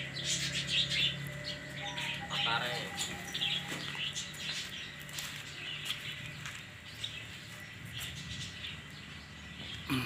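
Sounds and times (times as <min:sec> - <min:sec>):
birds chirping: 0:00.0 - 0:10.0.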